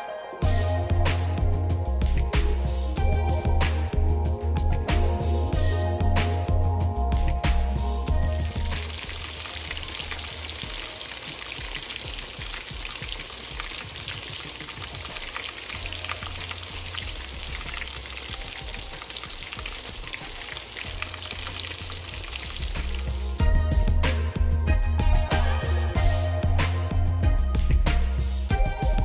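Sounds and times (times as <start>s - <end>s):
background music: 0.0s - 29.0s
fish frying in oil: 8.1s - 23.4s.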